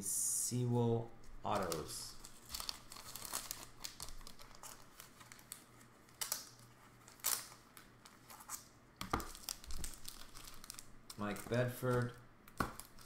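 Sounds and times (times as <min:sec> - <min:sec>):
plastic sleeves crinkling: 0:01.2 - 0:13.0.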